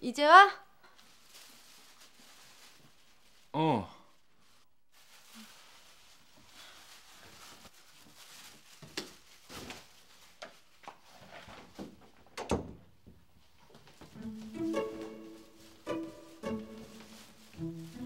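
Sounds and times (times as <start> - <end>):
wooden door shutting: 12.4 - 12.9
soft footsteps: 13.0 - 18.0
plucked and bowed string music: 14.2 - 18.0.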